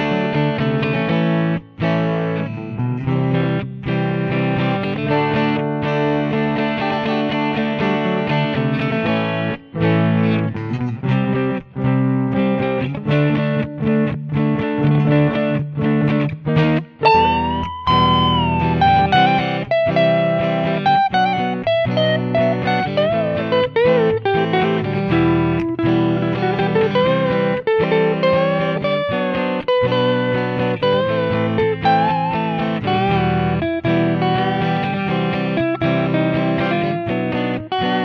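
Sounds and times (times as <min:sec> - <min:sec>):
electric guitar lead melody: 0:00.0 - 0:38.0
rhythm accompaniment: 0:17.0 - 0:21.0.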